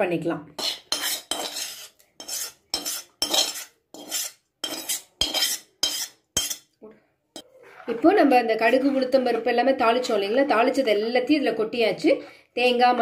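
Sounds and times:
spoon scraping metal pan: 0:00.6 - 0:06.7.

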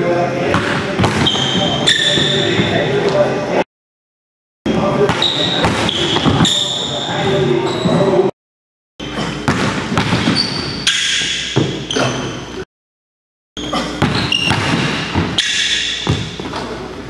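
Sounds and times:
basketball bouncing: 0:00.5 - 0:02.8, 0:05.0 - 0:06.5, 0:09.1 - 0:10.7, 0:11.6 - 0:11.8, 0:13.8 - 0:16.6
sneakers squeaking on hardwood: 0:00.5 - 0:03.2, 0:05.0 - 0:08.3, 0:09.0 - 0:12.6, 0:13.6 - 0:16.8.

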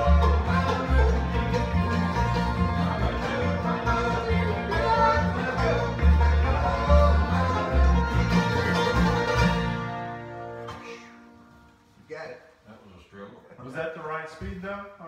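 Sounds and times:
plucked bass line: 0:00.0 - 0:10.4
bluegrass band playing: 0:00.0 - 0:11.9.

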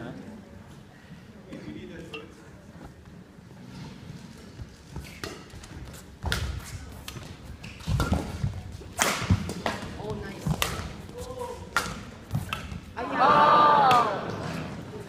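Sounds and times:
racket hitting shuttlecock: 0:05.0 - 0:12.9.

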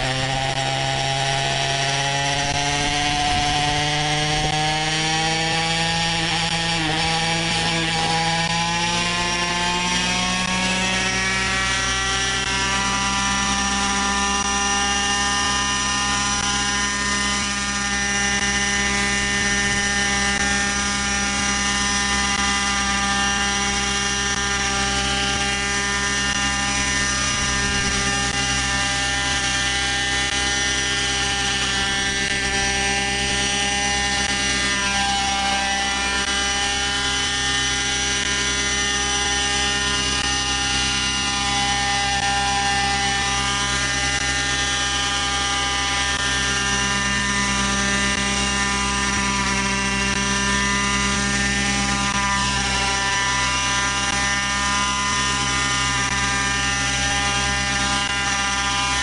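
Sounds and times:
model helicopter engine and rotor: 0:00.0 - 0:59.0.

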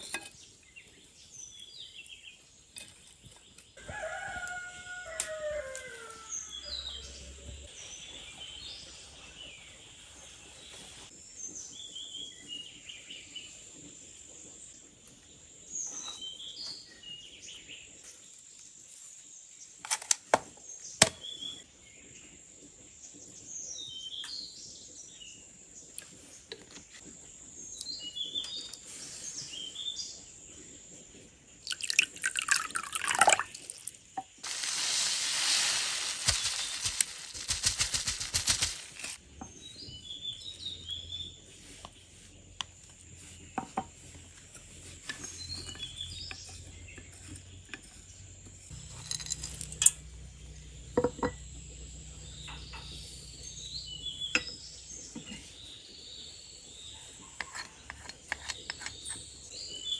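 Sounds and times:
small birds chirping: 0:00.0 - 0:03.8, 0:27.3 - 0:48.3, 0:51.4 - 0:59.9.

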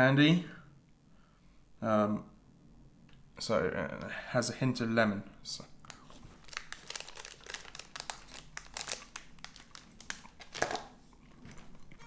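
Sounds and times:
plastic wrapper crinkling: 0:05.8 - 0:12.0.

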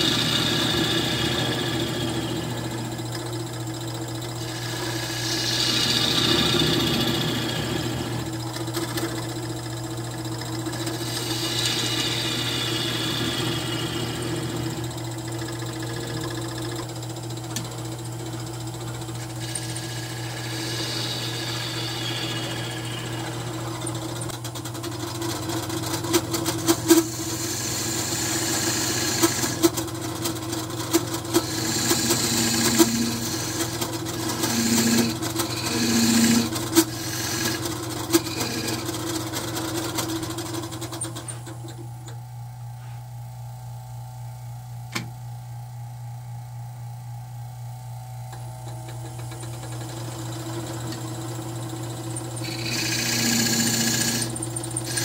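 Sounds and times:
wood lathe running: 0:00.0 - 0:41.8, 0:49.0 - 0:55.0
gouge scraping hiss: 0:04.4 - 0:07.7, 0:10.9 - 0:14.2, 0:19.3 - 0:23.4, 0:26.7 - 0:29.6, 0:31.4 - 0:37.6, 0:52.4 - 0:54.2.

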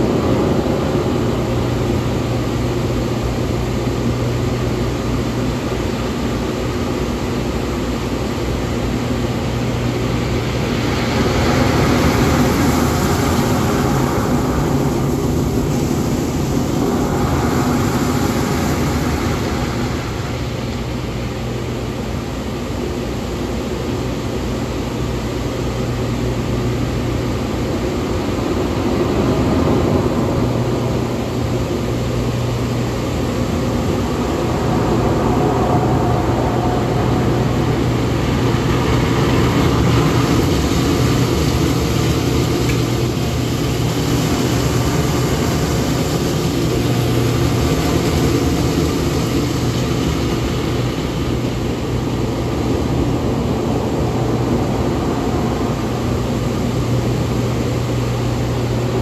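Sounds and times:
motor hum: 0:00.0 - 0:23.6, 0:25.0 - 0:59.0
water jets rushing: 0:09.0 - 0:22.4, 0:28.0 - 0:59.0.

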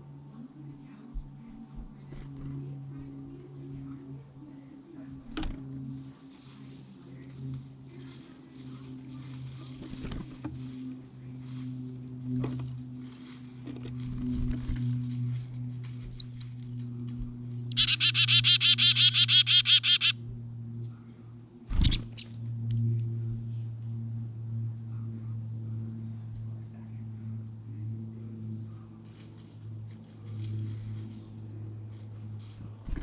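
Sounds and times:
songbirds chirping: 0:00.0 - 0:22.4, 0:24.0 - 0:33.0
steady low hum: 0:00.0 - 0:33.0
rapid buzzy bird notes: 0:17.6 - 0:20.2.

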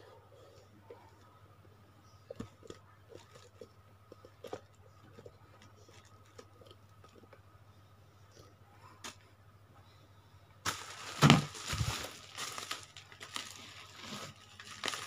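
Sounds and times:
steady low hum: 0:00.0 - 0:15.0
bubble wrap crinkling and clicking: 0:10.6 - 0:15.0.

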